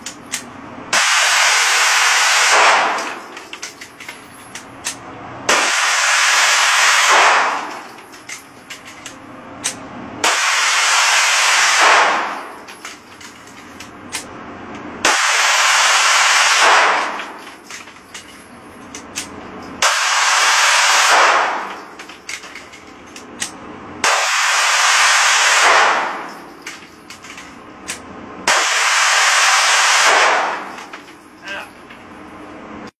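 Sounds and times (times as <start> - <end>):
pistol firing full-auto bursts: 1.0 - 3.2, 5.5 - 7.7, 10.2 - 12.3, 15.0 - 17.4, 19.8 - 21.7, 24.0 - 26.3, 28.5 - 30.8
single gunshot cracks: 1.0 - 3.2, 5.5 - 7.8, 10.2 - 12.3, 15.0 - 17.4, 19.8 - 21.7, 28.5 - 30.8.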